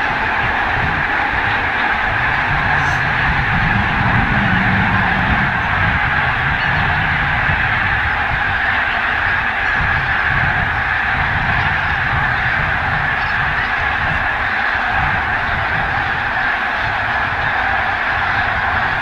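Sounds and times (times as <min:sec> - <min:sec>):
steady low rumble: 0:00.0 - 0:14.2
geese honking and yelping: 0:00.0 - 0:19.0.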